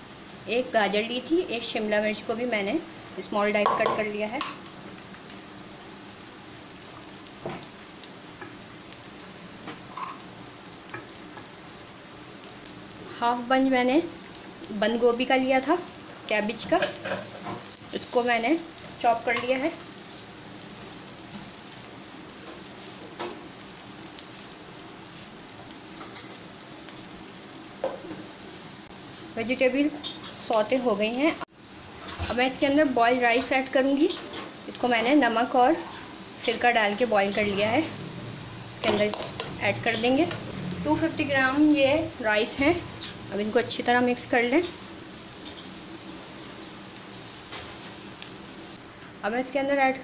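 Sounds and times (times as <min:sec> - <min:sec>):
vegetables sizzling in oil: 0:00.0 - 0:50.0
spatula scraping on pan: 0:09.8 - 0:10.2.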